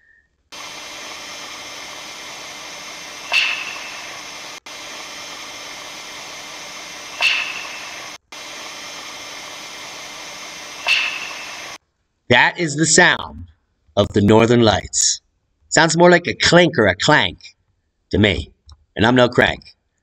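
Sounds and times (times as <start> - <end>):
steady hiss: 0.5 - 11.8
sharp snaps with ringing tail: 3.2 - 4.2, 7.1 - 8.2, 10.8 - 11.8.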